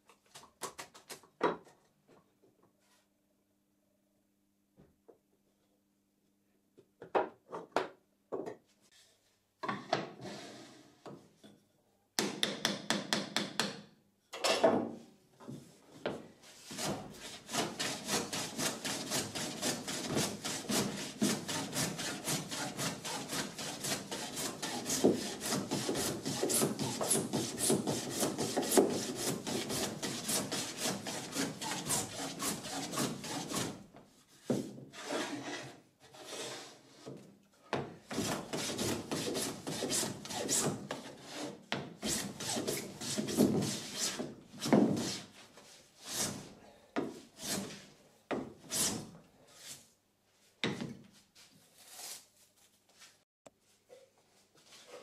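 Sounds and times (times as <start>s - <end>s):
hand plane scraping wood: 16.6s - 33.8s, 34.9s - 37.1s, 38.1s - 46.5s, 47.4s - 47.9s, 48.6s - 49.8s.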